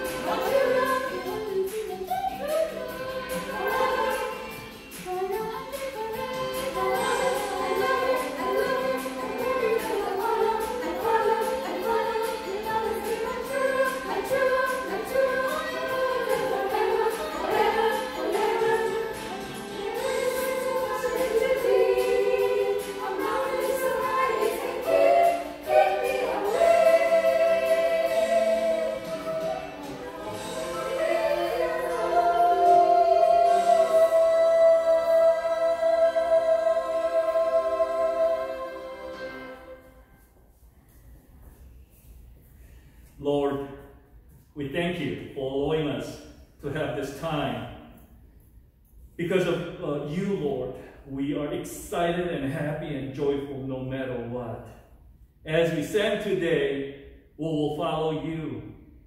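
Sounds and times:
choir singing: 0.0s - 40.3s.

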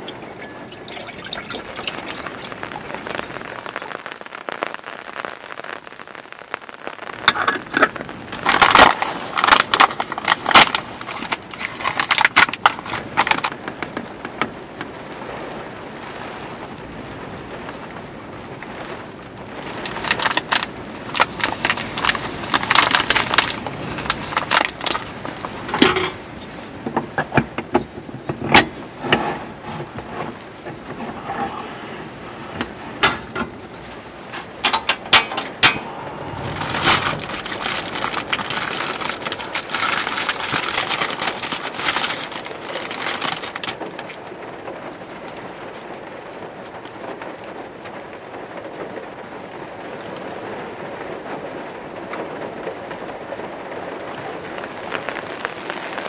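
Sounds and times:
coffee pouring into filter basket: 0.0s - 5.2s, 7.2s - 13.9s, 19.6s - 26.2s, 35.1s - 44.3s, 54.6s - 56.0s
foil bag crinkling: 0.0s - 14.2s, 19.5s - 26.8s, 32.1s - 47.3s, 54.2s - 56.0s
steady hiss: 0.0s - 56.0s.

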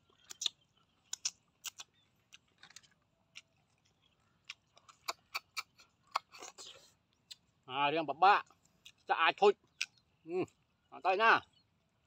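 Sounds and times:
chewing: 0.0s - 7.6s, 8.4s - 10.7s
wet lip smacks: 0.2s - 1.9s, 4.5s - 7.4s.

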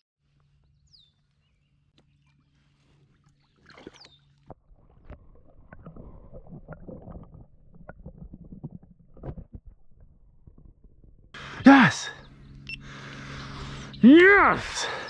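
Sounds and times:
water splashes: 2.2s - 10.0s.

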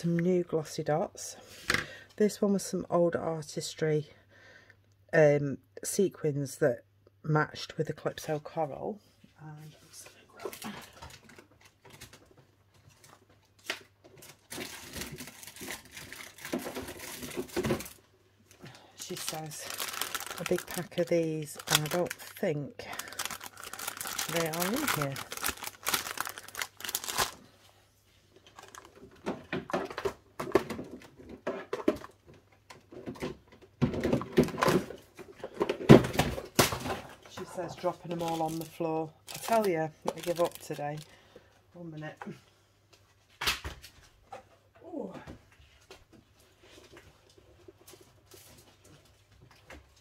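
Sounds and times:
packets crinkling and rustling: 10.4s - 27.6s, 28.4s - 29.2s, 34.4s - 41.2s.

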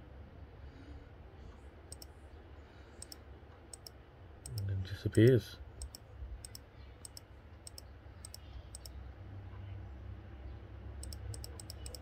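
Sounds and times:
low steady hum: 0.0s - 12.0s
sharp double clicks: 5.8s - 9.0s, 11.0s - 12.0s.

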